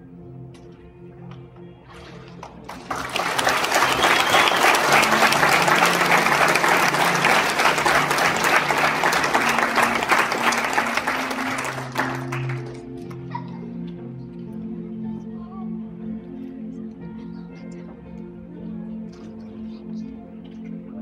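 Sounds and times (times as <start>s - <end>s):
soft background music: 0.0s - 21.0s
crowd applauding: 2.6s - 13.1s.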